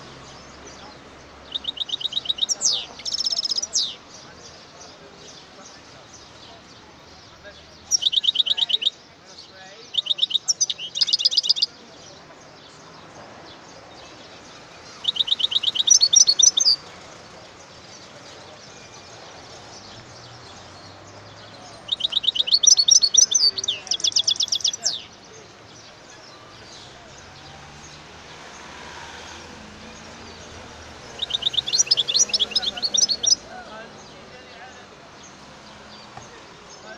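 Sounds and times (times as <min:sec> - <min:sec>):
goldfinch singing: 0:00.2 - 0:06.8, 0:07.7 - 0:11.8, 0:14.0 - 0:16.9, 0:18.6 - 0:34.1.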